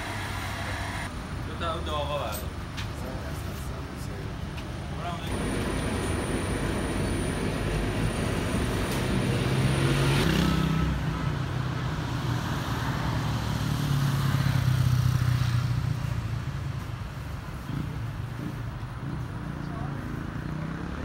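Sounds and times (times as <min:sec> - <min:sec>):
city noise: 0:00.0 - 0:21.0
vehicle engine passing: 0:05.3 - 0:11.0.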